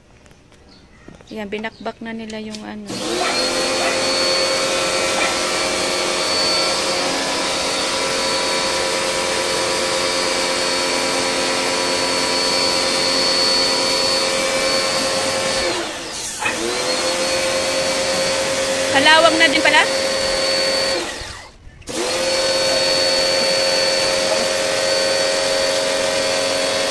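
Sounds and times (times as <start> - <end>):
pressure washer motor whine: 2.9 - 26.9
water jet hissing: 11.3 - 21.2, 22.1 - 26.9.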